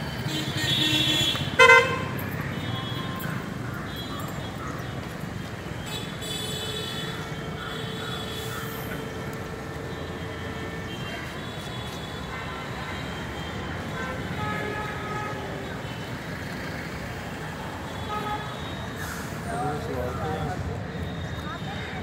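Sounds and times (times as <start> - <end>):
distant horns: 0.0 - 16.3
street traffic rumble: 0.0 - 22.0.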